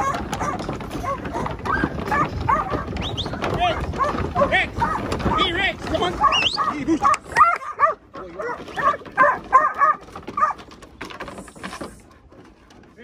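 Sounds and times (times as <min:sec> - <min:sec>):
dog barking: 0:00.0 - 0:02.9, 0:06.2 - 0:10.6.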